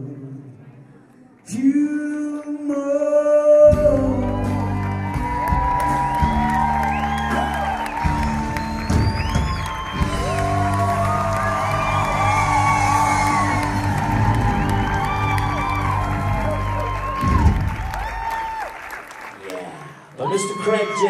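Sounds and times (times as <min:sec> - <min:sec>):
live band music: 0:03.7 - 0:17.9
audience whooping and cheering: 0:03.8 - 0:21.0.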